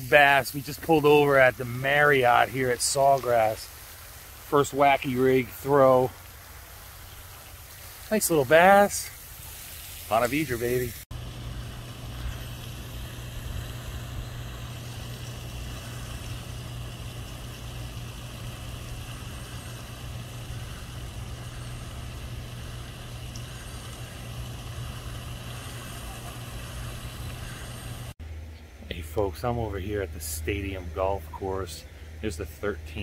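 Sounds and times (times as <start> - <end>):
motor idling hum: 10.4 - 32.8.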